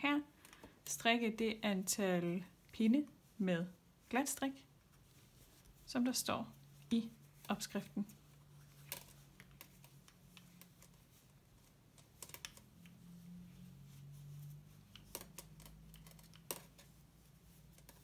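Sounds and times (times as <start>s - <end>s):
knitting needles clicking: 8.8s - 11.1s, 11.9s - 13.0s, 14.4s - 17.0s.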